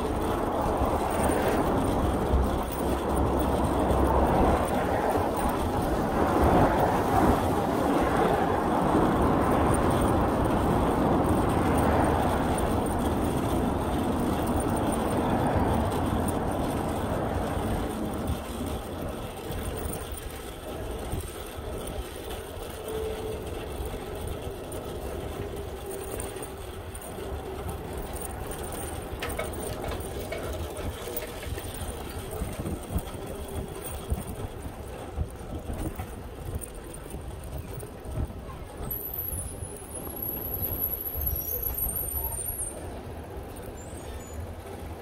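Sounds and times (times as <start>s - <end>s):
street noise: 0.0s - 45.0s.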